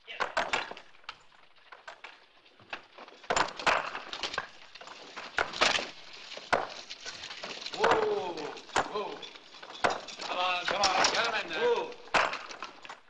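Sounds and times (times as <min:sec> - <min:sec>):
horse-drawn wagon clattering: 0:00.4 - 0:13.0
sledgehammers striking rocks: 0:05.3 - 0:12.8.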